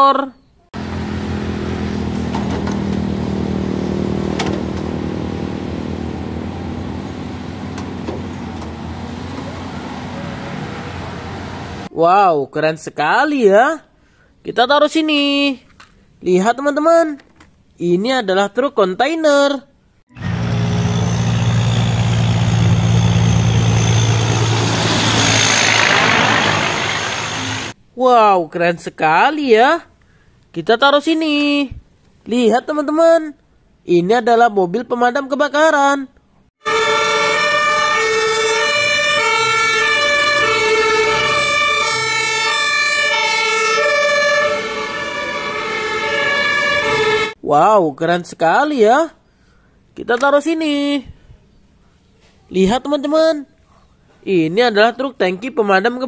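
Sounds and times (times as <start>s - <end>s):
diesel truck engine droning: 0.8s - 11.9s, 20.1s - 27.8s, 36.6s - 47.4s
two-tone emergency sirens: 4.8s - 11.9s, 20.1s - 27.8s, 36.6s - 47.4s.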